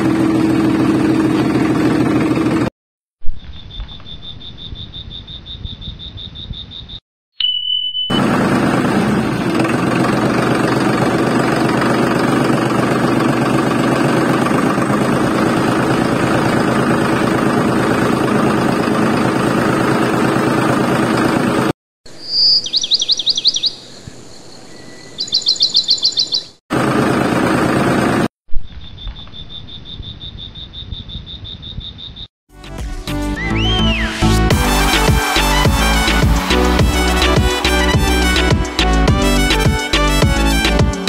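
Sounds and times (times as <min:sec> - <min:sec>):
tractor engine running: 0:00.0 - 0:02.7, 0:08.1 - 0:21.7, 0:26.7 - 0:28.3
insect-like chirring: 0:03.4 - 0:08.1
birds chirping in trills: 0:03.5 - 0:08.2, 0:22.1 - 0:26.6, 0:28.8 - 0:32.3.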